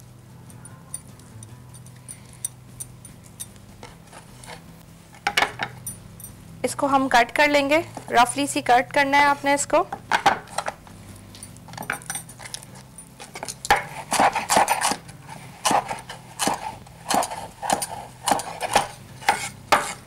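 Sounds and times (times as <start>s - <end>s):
knife chopping on wooden board: 13.7s - 15.0s, 15.6s - 20.0s.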